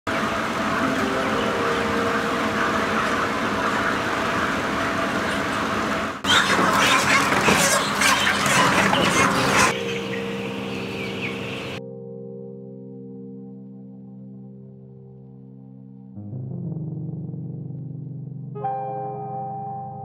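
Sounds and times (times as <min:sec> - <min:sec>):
steady hum: 0:00.1 - 0:06.3
din of chickens: 0:00.1 - 0:11.8
chickens squawking: 0:00.6 - 0:11.8
chicks chattering: 0:00.6 - 0:11.8
wings flapping: 0:05.1 - 0:09.8
crates clattering: 0:06.3 - 0:09.7.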